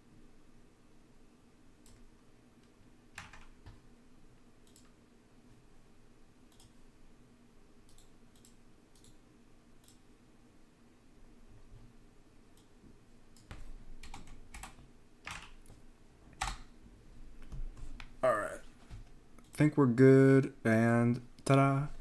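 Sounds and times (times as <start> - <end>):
low room hum: 0.0 - 22.0
keyboard and mouse clicks: 1.8 - 3.8, 4.6 - 5.0, 6.5 - 6.8, 7.9 - 9.2, 9.8 - 10.0, 13.3 - 15.8, 16.4 - 16.7.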